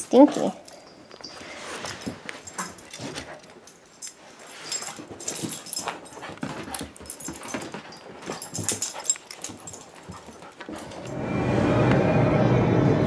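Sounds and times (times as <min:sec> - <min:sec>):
scuffs and knocks: 0:01.0 - 0:11.0.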